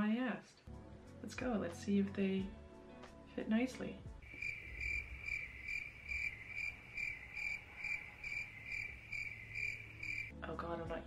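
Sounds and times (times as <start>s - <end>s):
cricket chirping: 4.2s - 10.3s.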